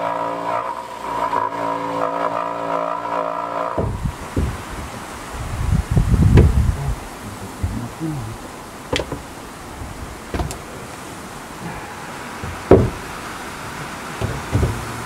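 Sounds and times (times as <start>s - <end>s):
wooden plank knocking on wall: 3.8s - 4.8s, 6.3s - 6.6s, 8.9s - 9.3s, 12.4s - 13.1s, 14.2s - 15.0s.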